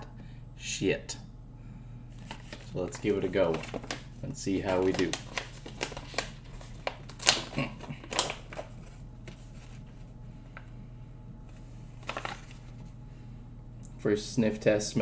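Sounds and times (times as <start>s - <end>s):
plastic pouch crinkling: 2.2s - 9.9s, 12.0s - 12.8s.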